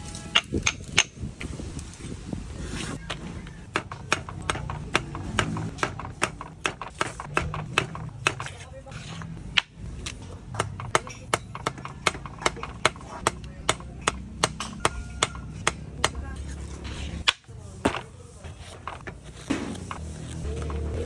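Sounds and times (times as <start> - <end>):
knife chopping on wooden board: 3.7 - 8.6.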